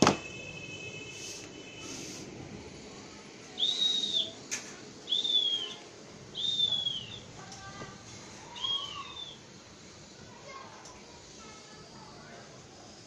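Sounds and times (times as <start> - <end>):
high whistled calls: 3.6 - 4.4, 5.0 - 7.4, 8.4 - 9.5.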